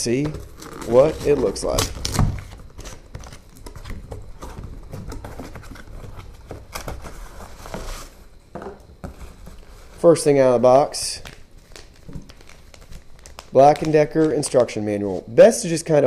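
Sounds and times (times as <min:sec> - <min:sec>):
cardboard scrapes and rustles: 0:04.4 - 0:08.2
cardboard box sliding: 0:07.0 - 0:08.2.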